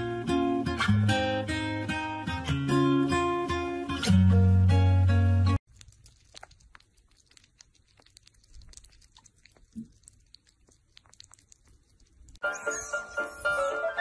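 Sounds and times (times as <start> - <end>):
music: 0.0 - 5.6, 12.4 - 14.0
animals licking and lapping food: 5.6 - 12.4.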